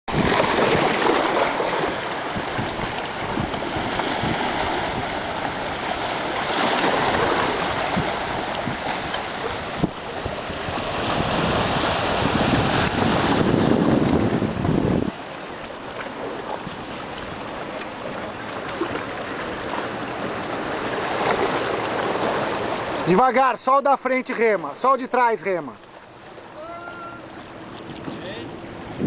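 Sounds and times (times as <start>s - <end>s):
wind noise on microphone: 0.1s - 15.4s, 27.9s - 29.0s
waves lapping against rocks: 0.1s - 29.0s.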